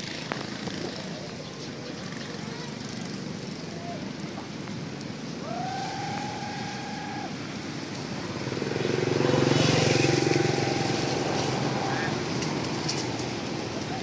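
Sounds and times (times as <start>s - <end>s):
motor vehicle passing: 5.4s - 14.0s.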